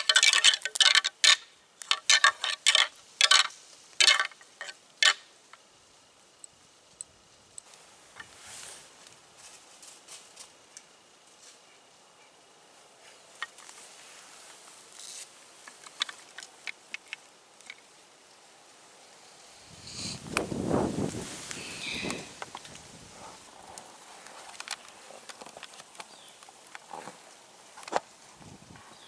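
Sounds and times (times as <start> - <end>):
antlers clacking: 0.0 - 5.3
gear clicking and rustling: 0.0 - 5.6.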